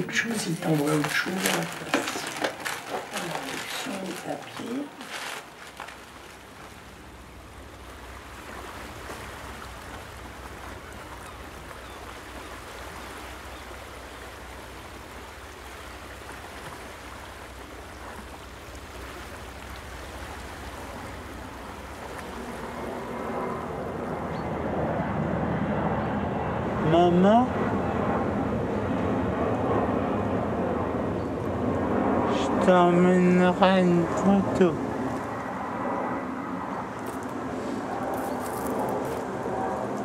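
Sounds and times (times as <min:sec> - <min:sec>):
water churning in boat wake: 0:00.0 - 0:24.4.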